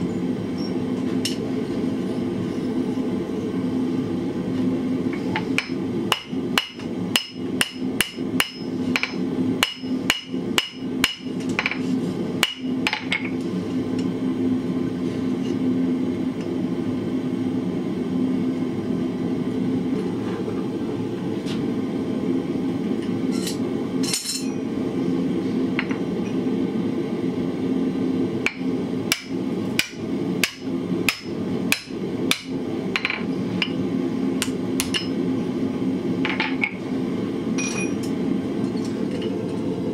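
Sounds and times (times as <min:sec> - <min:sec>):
steady low hum: 0:00.0 - 0:39.9
hammer striking iron on anvil: 0:05.6 - 0:11.8, 0:12.4 - 0:13.3, 0:28.5 - 0:33.8, 0:34.4 - 0:35.2.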